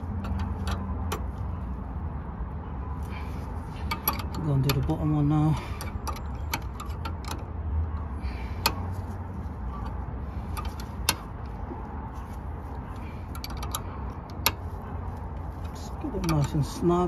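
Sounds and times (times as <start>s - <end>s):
spanner clicking on metal fitting: 3.9s - 5.2s.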